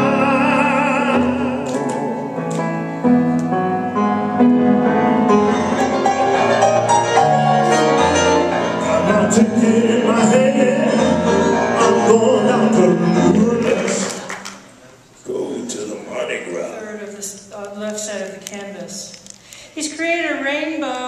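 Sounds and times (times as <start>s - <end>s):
man singing: 0.0s - 2.6s, 8.7s - 14.3s
jazz piano: 0.0s - 14.4s.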